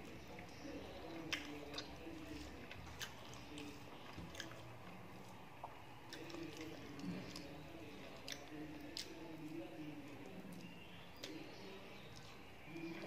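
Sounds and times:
mouth chewing food: 0:00.0 - 0:13.0.

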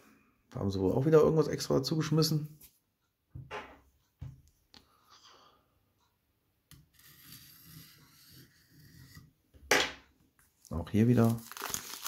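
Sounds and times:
shrink-wrapped booklet rustling: 0:10.6 - 0:12.0.

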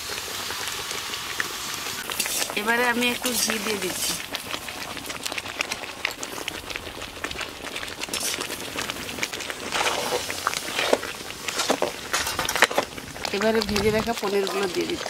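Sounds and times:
thick puree bubbling and spitting: 0:00.0 - 0:15.0
metal spatula stirring: 0:03.3 - 0:04.2, 0:09.7 - 0:12.9.

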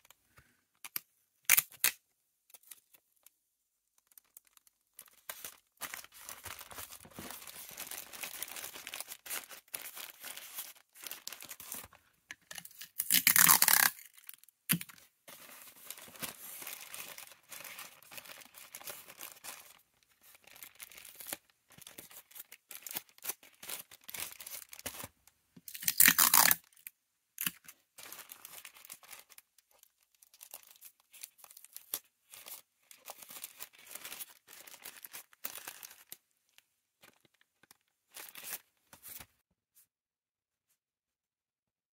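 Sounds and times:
plastic bag crinkling: 0:04.0 - 0:25.1, 0:27.5 - 0:36.2
tape ripping off a roll: 0:12.5 - 0:14.8, 0:25.7 - 0:26.6.

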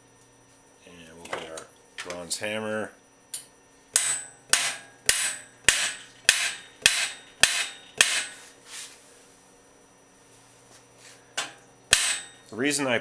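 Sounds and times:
hammer striking metal: 0:04.0 - 0:08.4, 0:11.4 - 0:12.4.

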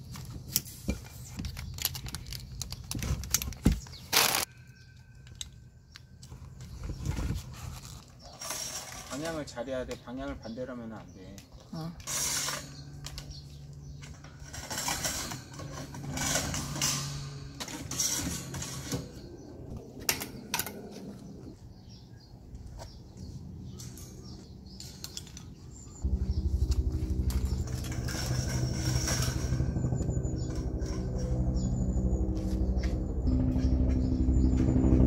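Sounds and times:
metal shelving parts clattering: 0:14.0 - 0:19.5, 0:26.3 - 0:29.8
helicopter rotor thudding: 0:26.0 - 0:35.0.

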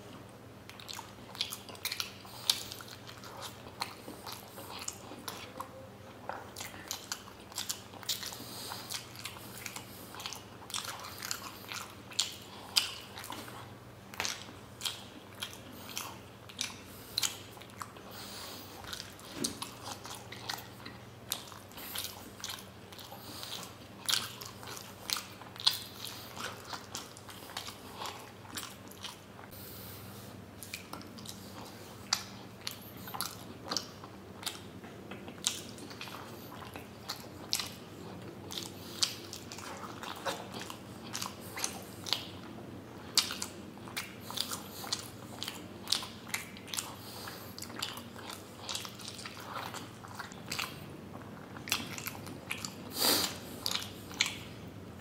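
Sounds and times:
person chewing: 0:00.0 - 0:55.0.

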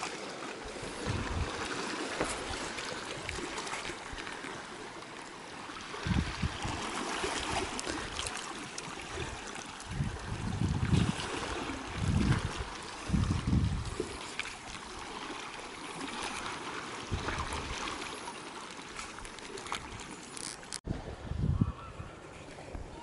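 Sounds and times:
sea water washing among rocks: 0:00.0 - 0:21.1
wind buffeting microphone: 0:00.8 - 0:01.7, 0:05.9 - 0:06.9, 0:09.2 - 0:14.2, 0:20.8 - 0:23.0.

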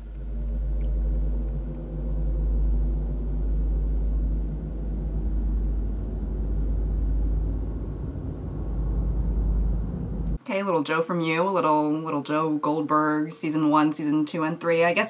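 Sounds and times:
deep rumble with droning hum: 0:00.0 - 0:10.4.

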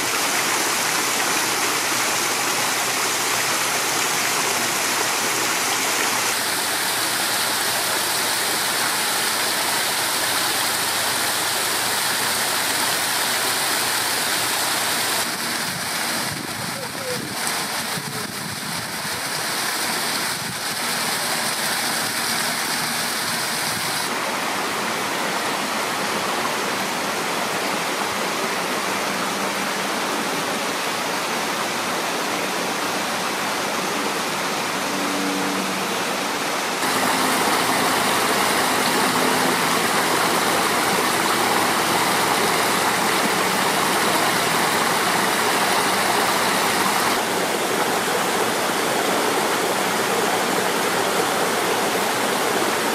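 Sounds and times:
water tumbling over rocks: 0:15.2 - 0:24.1, 0:36.8 - 0:48.8.

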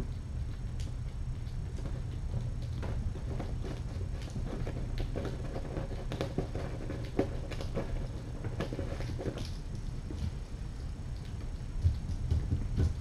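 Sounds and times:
kitten paws pattering on hard floor: 0:00.0 - 0:13.0
steady low hum: 0:00.0 - 0:13.0.

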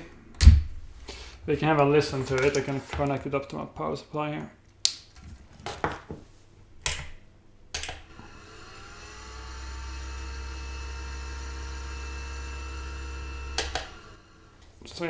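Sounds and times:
cooler fan whining: 0:08.1 - 0:14.7.

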